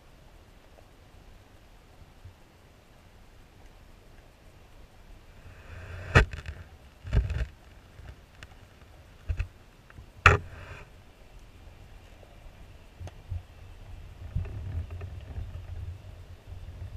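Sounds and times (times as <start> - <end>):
short hiss: 5.3 - 6.7, 10.2 - 11.0.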